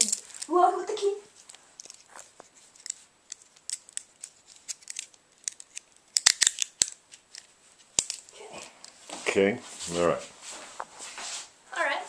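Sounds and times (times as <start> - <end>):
handcuffs ratcheting clicks: 2.8 - 9.0.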